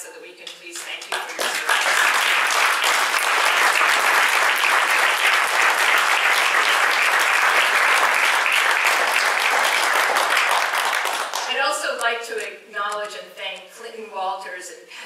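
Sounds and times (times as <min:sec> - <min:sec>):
audience applauding: 0:01.1 - 0:11.5.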